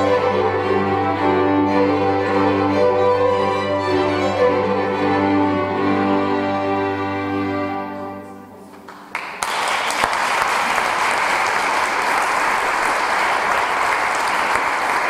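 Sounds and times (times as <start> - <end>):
string orchestra chord: 0.0 - 8.7
audience applause: 8.7 - 15.0.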